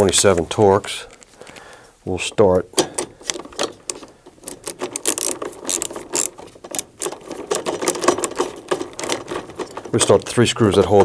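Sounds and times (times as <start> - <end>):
screwdriver clicking as it turns: 3.3 - 7.2.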